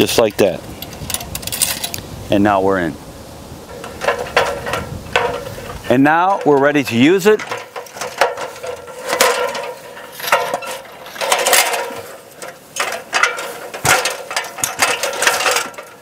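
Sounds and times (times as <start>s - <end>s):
metal ladder clanking: 3.7s - 16.0s.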